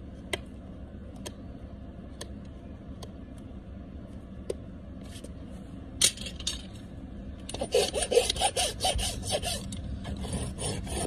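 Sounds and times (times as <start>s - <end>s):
rasp filing hoof: 7.5s - 11.0s.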